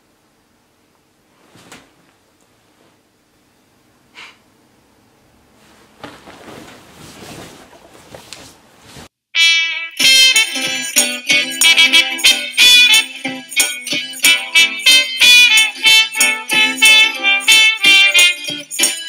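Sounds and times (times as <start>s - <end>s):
bedding rustling: 1.2s - 3.1s, 5.4s - 9.2s
person breathing: 4.1s - 4.5s
loud music: 9.4s - 19.0s.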